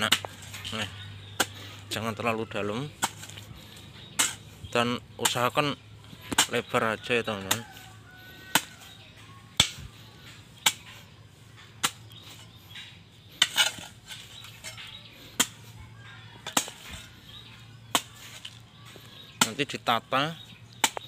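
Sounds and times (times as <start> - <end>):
hoe striking stony soil: 0.0 - 1.6, 2.9 - 3.5, 4.1 - 4.5, 6.2 - 7.8, 9.5 - 11.0, 11.6 - 15.8, 16.4 - 17.1, 17.8 - 18.6, 20.8 - 21.0.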